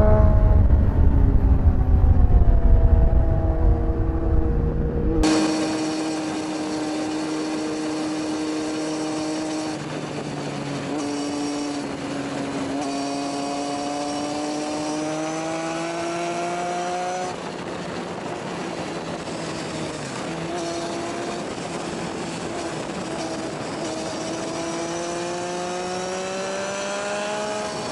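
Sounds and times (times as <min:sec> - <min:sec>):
wind rushing: 0:00.0 - 0:08.6
motorcycle engine at high revs: 0:05.2 - 0:27.9.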